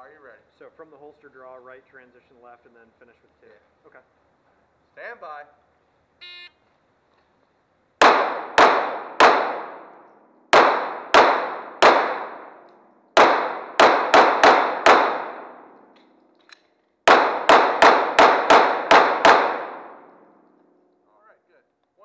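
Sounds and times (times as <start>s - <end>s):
pistol shots echoing indoors: 8.0s - 16.2s, 17.0s - 20.8s.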